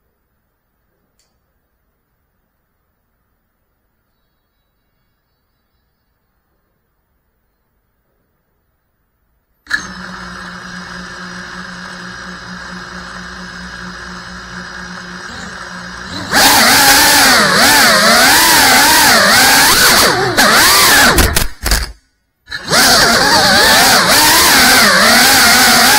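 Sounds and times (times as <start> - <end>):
drone motors whining: 9.7 - 25.9.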